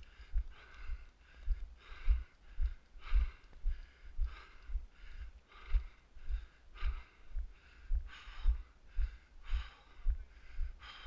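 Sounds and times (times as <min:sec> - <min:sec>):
person breathing hard: 0:00.0 - 0:11.0.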